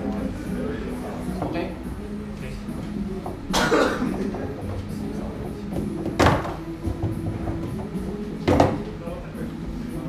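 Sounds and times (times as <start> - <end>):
foosball ball slamming table: 5.7 - 8.8.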